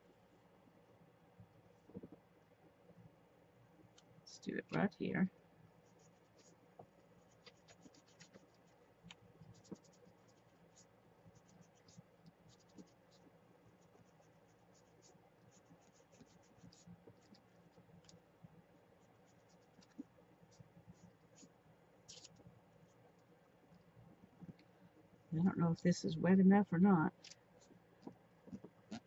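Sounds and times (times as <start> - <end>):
fingers and sponge rubbing paper: 5.8 - 23.2
small crisp ticks: 22.1 - 22.5.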